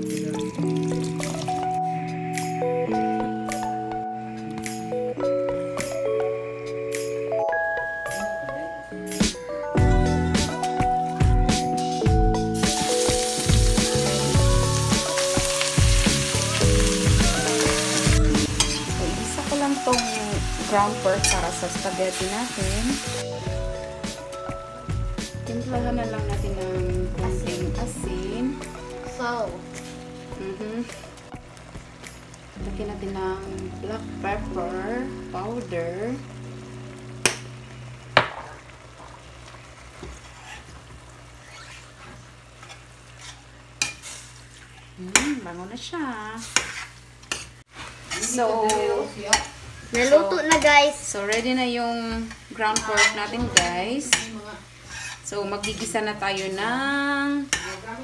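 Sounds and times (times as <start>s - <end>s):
meat sizzling in hot oil: 0.0s - 1.9s, 12.0s - 58.0s
background music with steady beat: 0.0s - 38.3s
spatula stirring in pan: 12.6s - 22.7s, 39.0s - 45.2s, 46.4s - 51.6s, 52.2s - 56.8s, 57.4s - 58.0s.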